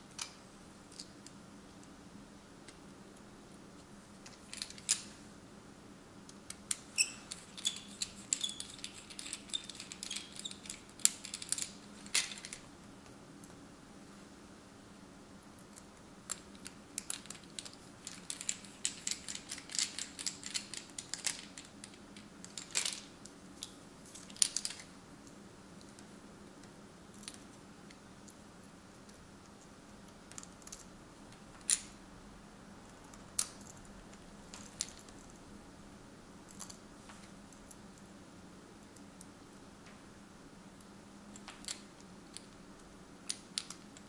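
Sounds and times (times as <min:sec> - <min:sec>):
faint steady hum: 0:00.0 - 0:44.0
small parts clicking and tapping: 0:04.2 - 0:05.1, 0:06.3 - 0:12.7, 0:15.6 - 0:32.0, 0:32.9 - 0:35.4, 0:40.8 - 0:44.0.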